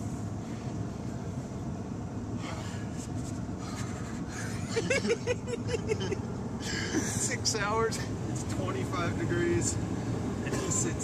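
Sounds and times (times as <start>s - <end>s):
car interior rumble: 0.0s - 11.0s
man laughing: 3.7s - 7.2s.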